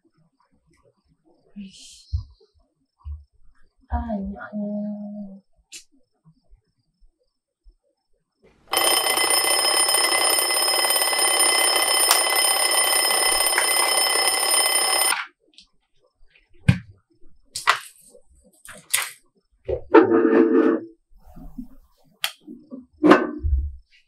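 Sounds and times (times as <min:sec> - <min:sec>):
alarm clock ringing: 0:08.7 - 0:15.2.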